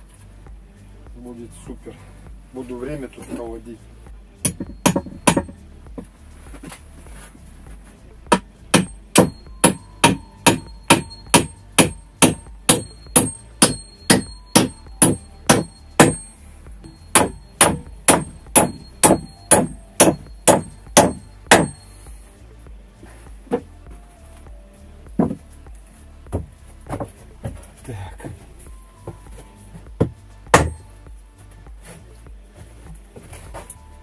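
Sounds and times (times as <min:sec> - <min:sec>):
hammer striking nails into wood: 0:04.4 - 0:05.6, 0:08.3 - 0:21.9, 0:25.2 - 0:25.4, 0:30.0 - 0:30.9.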